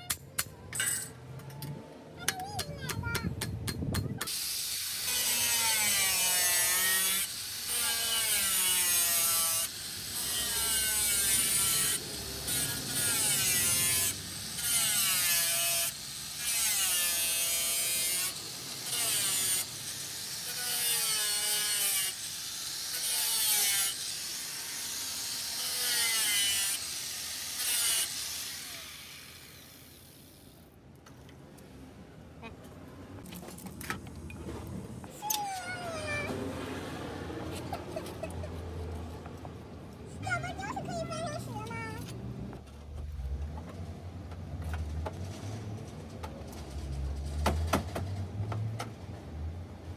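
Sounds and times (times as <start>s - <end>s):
angle grinder cutting steel: 4.2s - 30.7s.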